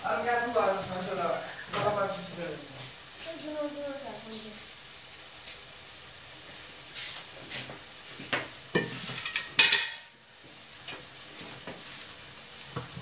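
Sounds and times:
metal containers clinking: 8.8 - 10.1.

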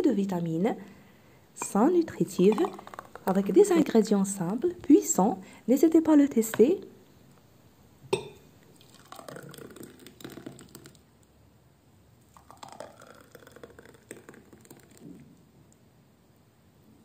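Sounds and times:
thick smoothie pouring gurgling: 2.3 - 3.8, 8.7 - 11.0, 12.3 - 15.2
glass set down on table: 8.1 - 8.4.

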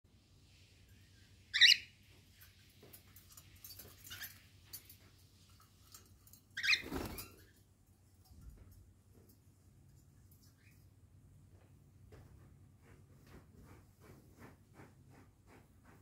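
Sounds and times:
soft bird chirps: 0.9 - 2.0
cockatiel screeching: 1.6 - 1.8.

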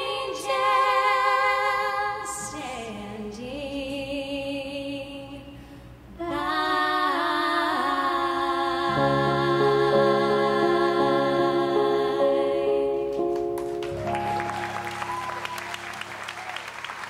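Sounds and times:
women singing slow song: 0.0 - 13.3.

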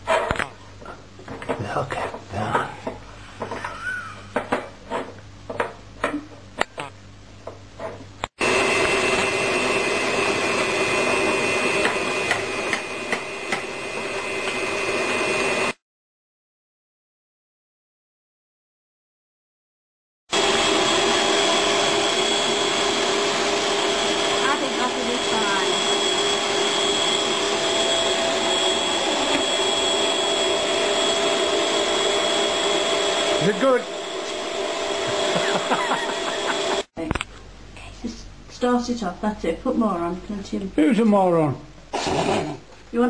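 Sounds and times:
electric mixer whine: 8.4 - 15.8, 20.3 - 36.9.

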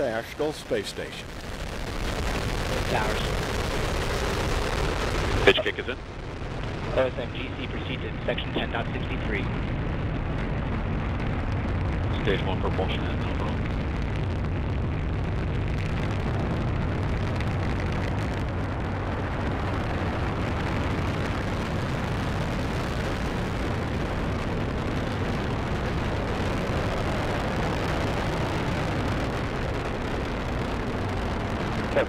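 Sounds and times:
deep rumble of rocket engines: 0.0 - 32.0.

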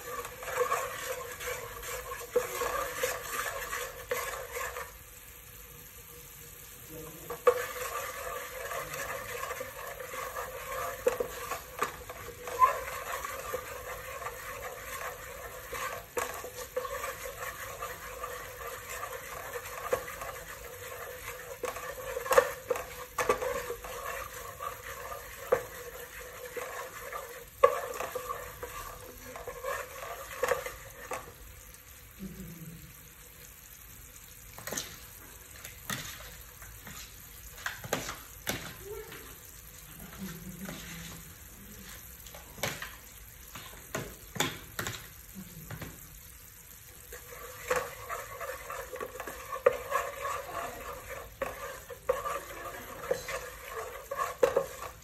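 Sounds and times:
wooden spatula stirring and scraping: 0.0 - 32.2, 32.8 - 55.0
liquid bubbling and sizzling: 0.0 - 55.0.

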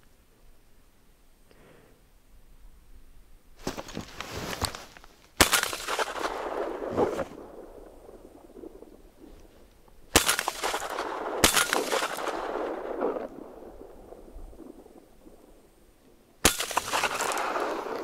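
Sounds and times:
rustling: 3.6 - 7.6
crunching snow: 3.6 - 13.3, 16.5 - 18.0.

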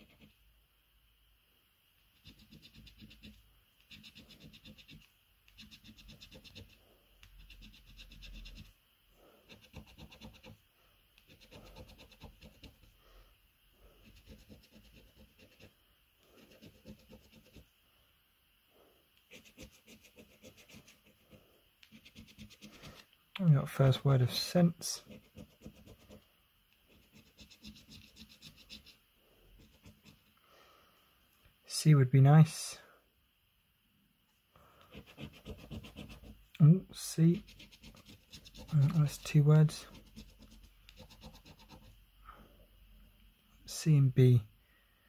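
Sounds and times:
coin scratching card: 2.2 - 8.7, 9.5 - 10.6, 11.2 - 12.9, 14.0 - 15.7, 16.4 - 17.6, 21.9 - 23.0, 26.9 - 29.0, 34.9 - 36.4, 37.3 - 41.9.

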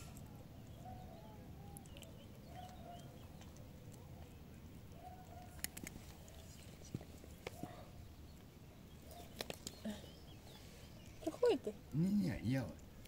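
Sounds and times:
cat crunching dry kibble: 1.8 - 7.6.

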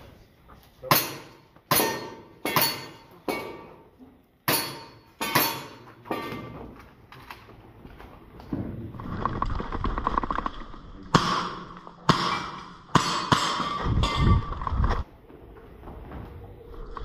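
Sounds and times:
metal plate ringing: 11.2 - 14.6.

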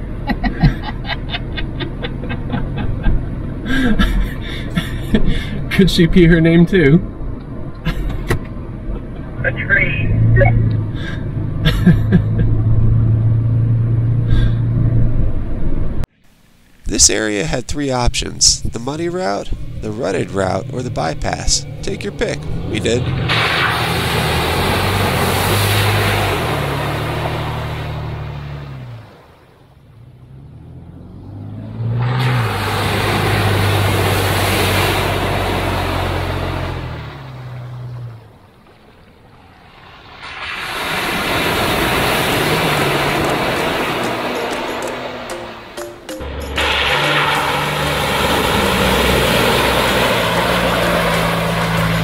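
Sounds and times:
vehicle engine running: 0.0 - 52.0
rushing noise: 39.4 - 52.0.

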